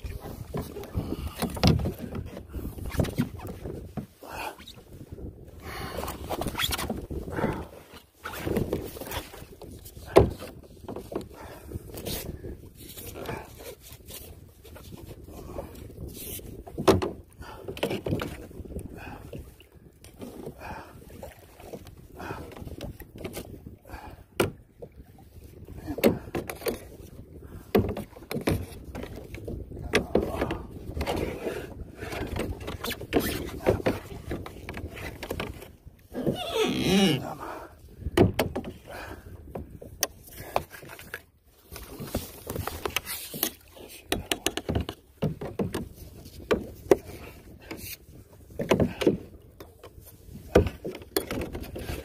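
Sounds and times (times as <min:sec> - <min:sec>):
fishing line hauled by hand: 0:00.0 - 0:05.3, 0:05.9 - 0:11.2, 0:27.8 - 0:37.4, 0:40.0 - 0:52.0.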